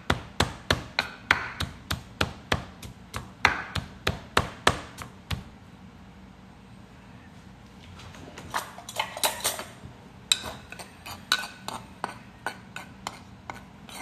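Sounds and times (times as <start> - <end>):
wooden pestle pounding in mortar: 0.0 - 5.5.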